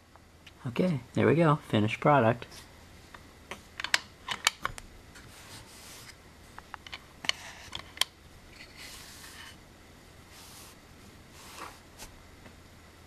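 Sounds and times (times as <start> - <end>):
soft rustling: 10.3 - 12.6.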